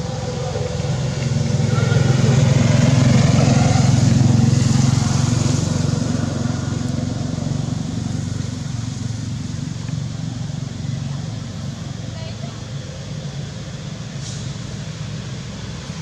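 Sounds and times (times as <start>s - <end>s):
vehicle passing by: 0.0s - 16.0s.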